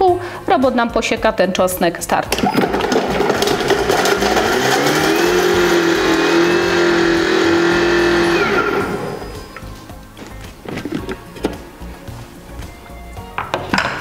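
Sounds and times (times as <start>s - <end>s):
kitchen robot motor whine: 3.2s - 9.5s.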